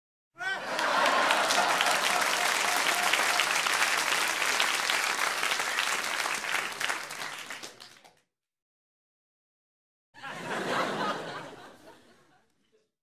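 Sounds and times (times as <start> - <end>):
audience laughing: 0.4 - 3.6, 10.2 - 12.9
audience clapping: 0.6 - 8.3.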